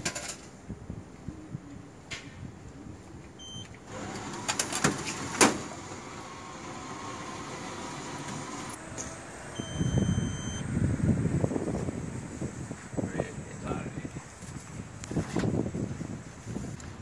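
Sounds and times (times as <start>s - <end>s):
electronic beep: 3.4s - 3.7s, 9.5s - 10.6s
motor humming: 3.9s - 8.9s.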